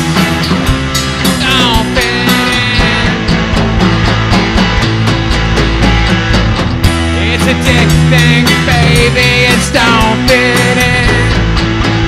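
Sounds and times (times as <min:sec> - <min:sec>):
drum beat: 0:00.0 - 0:12.0
rock band playing: 0:00.0 - 0:12.0
person singing: 0:01.2 - 0:03.4, 0:07.1 - 0:11.5.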